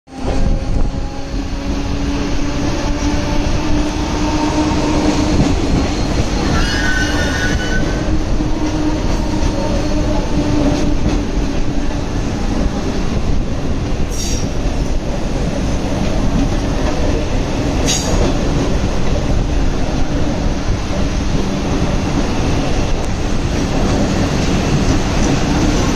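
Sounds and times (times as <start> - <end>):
train wheels rumbling on rails: 0.1 - 25.9
high squeal: 4.2 - 8.1.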